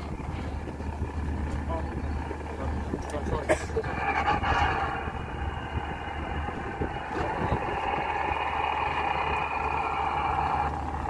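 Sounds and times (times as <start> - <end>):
boat engine running: 0.0 - 11.0.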